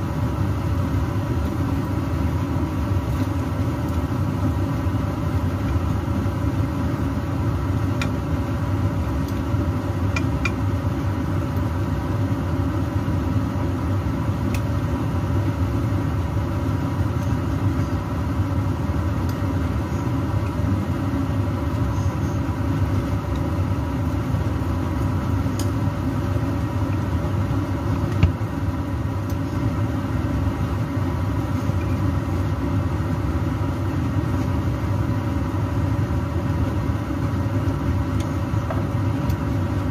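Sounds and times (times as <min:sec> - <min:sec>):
steady machine hum: 0:00.0 - 0:39.9.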